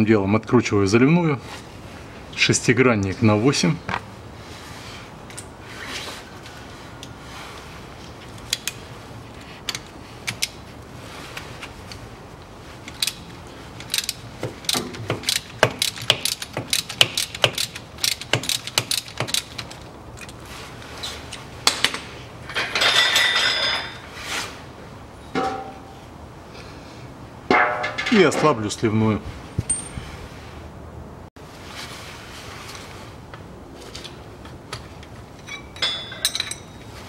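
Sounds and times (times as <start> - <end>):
ratchet wrench clicking: 13.8 - 19.8.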